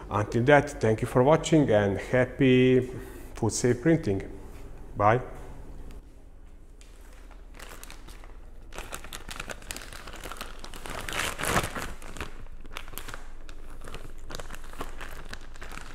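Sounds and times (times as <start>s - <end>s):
plastic bag crinkling: 6.8s - 15.9s.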